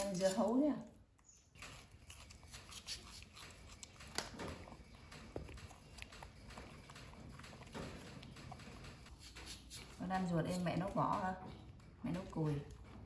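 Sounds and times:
crisp crunching of chewing: 1.2s - 9.6s.

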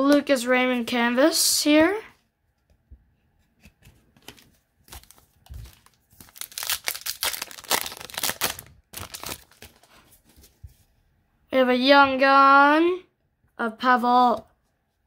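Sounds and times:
cards and foil wrapper crinkling: 4.2s - 10.1s.

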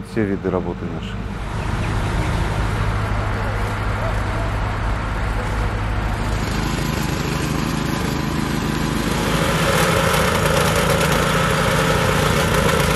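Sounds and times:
plate compactor engine rattling: 1.4s - 12.9s.

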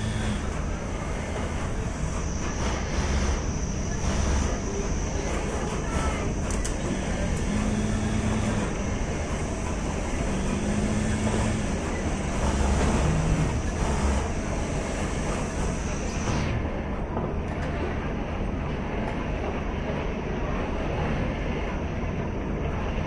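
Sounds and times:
sewing machines running: 0.0s - 16.6s
high machine whine: 0.0s - 17.0s
low machine hum: 0.0s - 23.0s.

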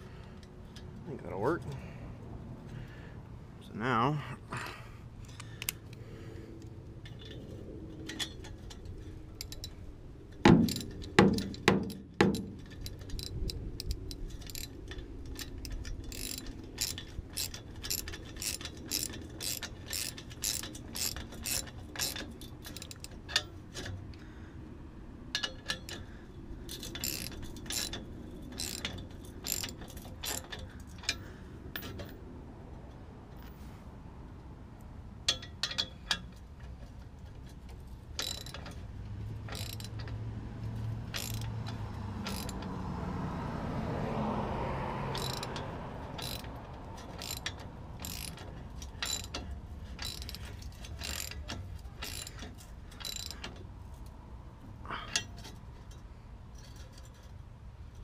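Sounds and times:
hand ratchet clicking: 8.1s - 24.2s, 25.3s - 32.1s, 35.2s - 42.8s, 45.1s - 54.1s.

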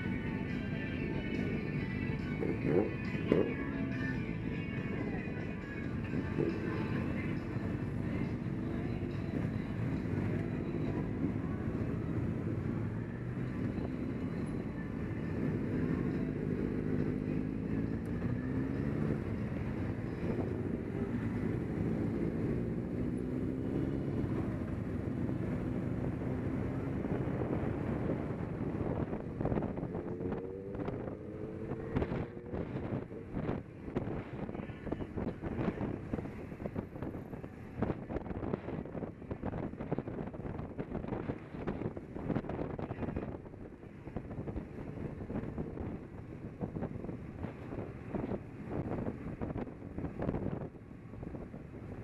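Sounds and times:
motorcycle engine running: 0.0s - 52.0s
wind buffeting microphone: 23.9s - 52.0s.

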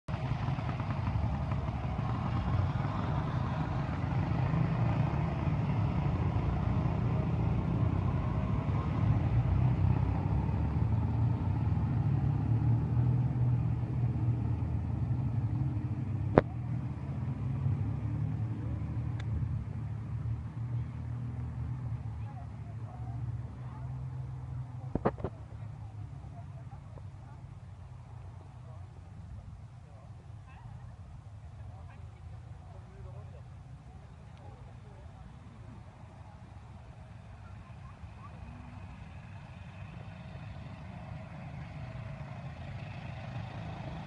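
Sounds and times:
motorcycle engines rumbling: 0.1s - 44.0s.

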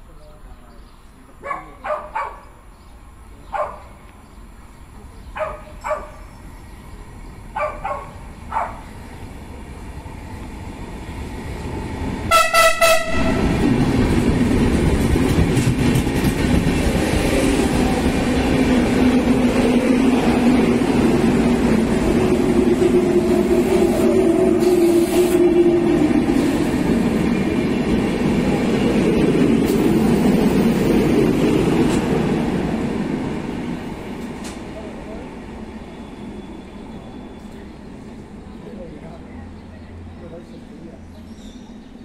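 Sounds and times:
train wheels rumbling: 4.4s - 39.2s
train horn blast: 12.3s - 13.6s.

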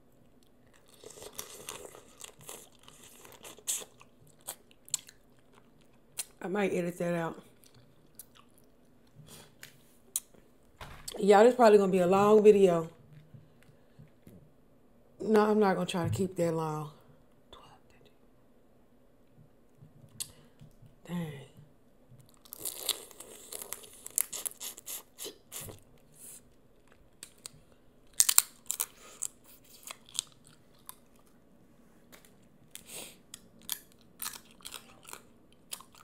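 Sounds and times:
chewing and wet mouth smacks: 7.6s - 10.3s
crawfish shells cracking: 27.2s - 31.1s.

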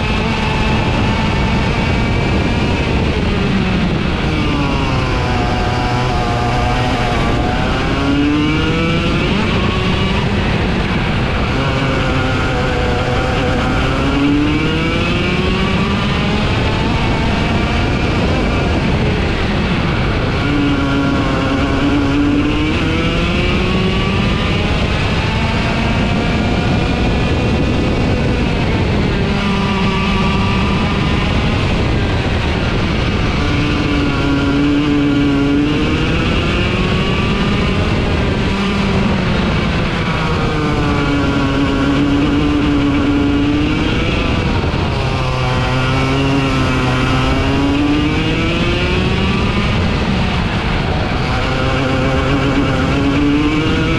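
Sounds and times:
kart engine revving: 0.0s - 53.9s
wind noise: 0.0s - 53.9s.

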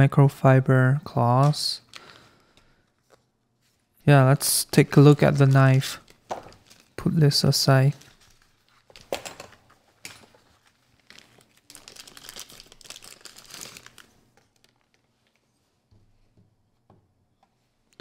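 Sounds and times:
plastic sleeve crinkling: 1.5s - 15.8s
paper packaging rustling: 4.8s - 15.7s.

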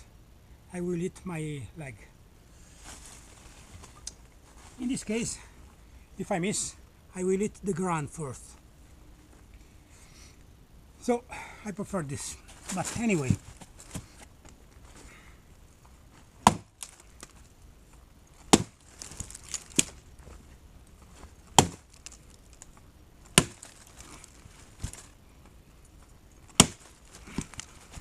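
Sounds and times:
axe chopping into log: 16.4s - 16.8s, 18.5s - 18.8s, 21.5s - 21.9s, 23.3s - 23.7s, 26.5s - 27.5s.

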